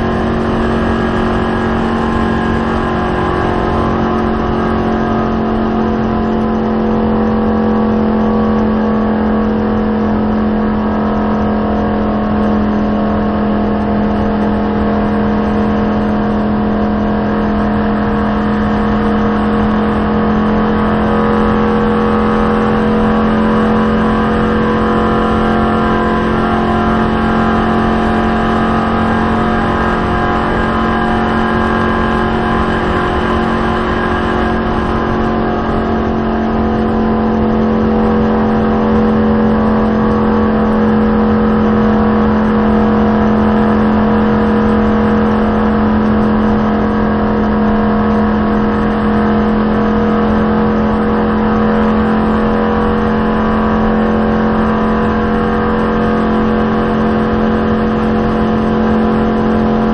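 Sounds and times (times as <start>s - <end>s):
car engine at full throttle: 0.0s - 59.9s
wind and road noise: 0.0s - 59.9s.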